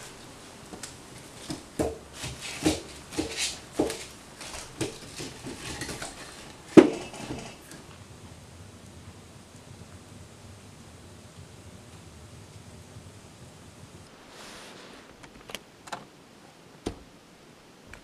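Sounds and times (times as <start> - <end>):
logs knocking against stove: 0.7 - 8.0.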